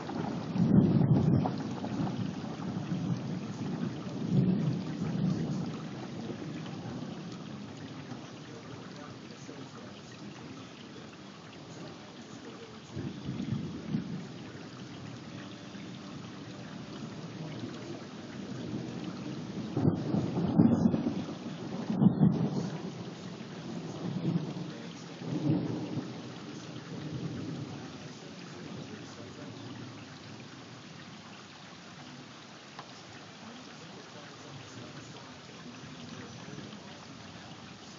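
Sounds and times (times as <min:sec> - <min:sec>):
thunder rolling: 0:00.0 - 0:09.1, 0:11.7 - 0:15.3, 0:16.1 - 0:29.6
steady rain: 0:00.0 - 0:37.9.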